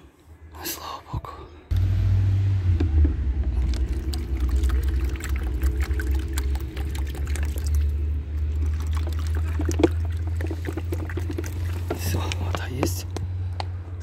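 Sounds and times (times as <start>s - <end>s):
steady low rumble: 1.6s - 14.0s
water pouring: 3.6s - 12.2s.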